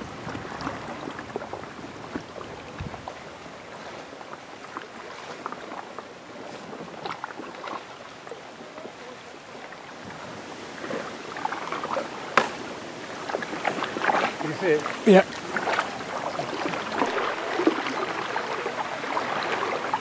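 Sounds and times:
paddles splashing in water: 0.0 - 20.0
steady water wash: 0.0 - 20.0
paddle knock: 11.7 - 18.2.

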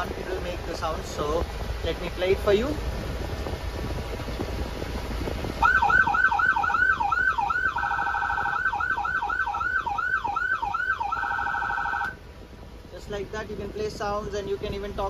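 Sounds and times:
fire truck siren yelping and warbling: 5.5 - 12.2.

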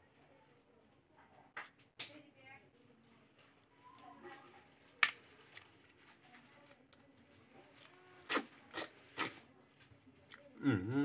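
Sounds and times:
food handling: 3.1 - 10.6.

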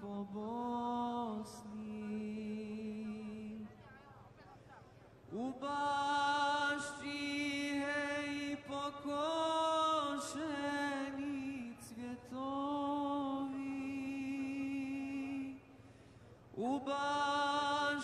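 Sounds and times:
man chanting in held notes: 5.4 - 15.9.

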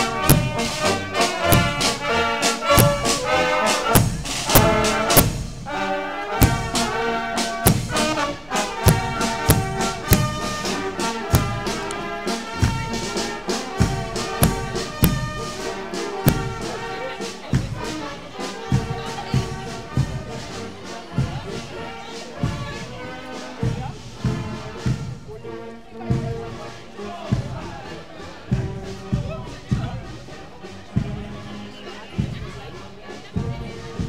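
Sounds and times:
bass drum beat: 0.0 - 5.7, 6.4 - 16.8
brass marching band: 0.0 - 34.0.

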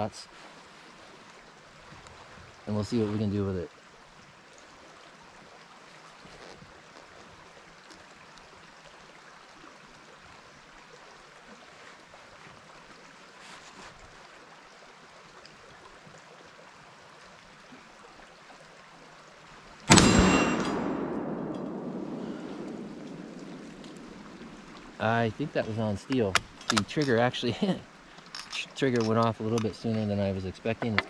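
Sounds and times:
faint background hiss: 0.0 - 31.0
faint soft clicks: 22.6 - 25.0.

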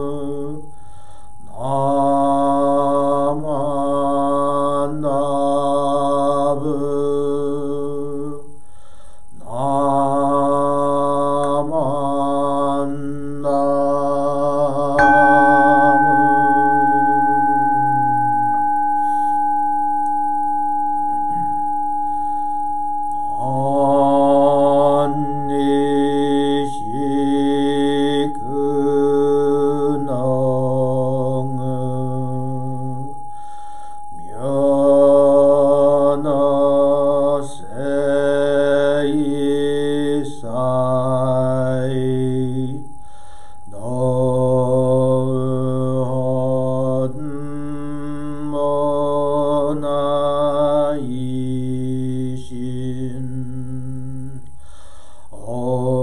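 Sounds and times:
man chanting: 0.0 - 0.7, 1.4 - 8.6, 9.4 - 19.5, 20.8 - 22.0, 23.2 - 33.2, 34.2 - 43.0, 43.6 - 54.5, 55.3 - 56.0
bowl bell ringing: 14.9 - 36.4.

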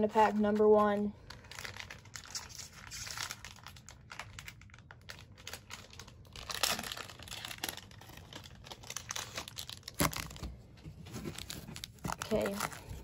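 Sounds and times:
plastic wrapper crinkling: 0.0 - 13.0.

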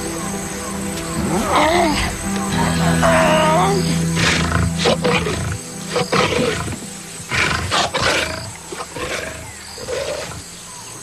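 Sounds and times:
soft background music: 0.0 - 11.0
lions growling and snarling: 4.2 - 10.5.

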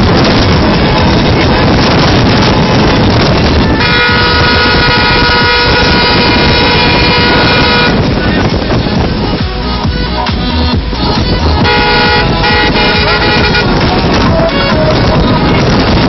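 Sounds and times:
loud dense noise: 0.0 - 16.0
car horn blast: 3.7 - 8.2, 11.6 - 15.1.

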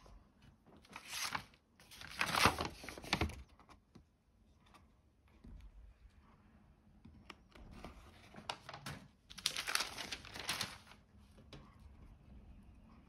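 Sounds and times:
doll clothes crinkling and rustling: 0.6 - 3.5, 7.8 - 11.1.

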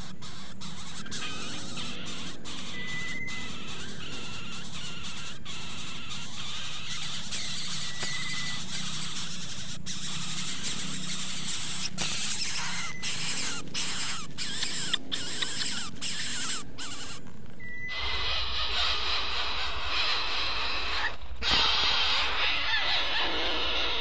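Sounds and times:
chicks squealing: 0.0 - 24.0.

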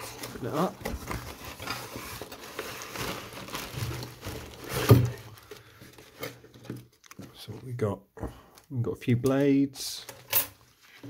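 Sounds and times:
plastic wrapping crinkling: 0.0 - 7.8.

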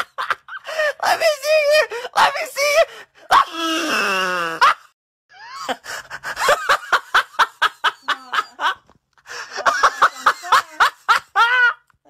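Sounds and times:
person laughing: 9.4 - 11.8.

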